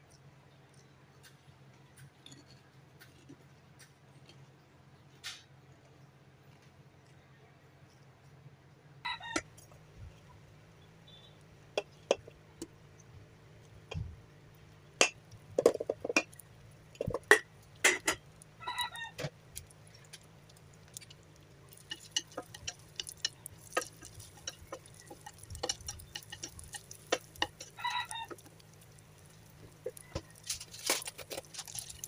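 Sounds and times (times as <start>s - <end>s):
utensils scraping in frying pan: 20.8s - 32.0s.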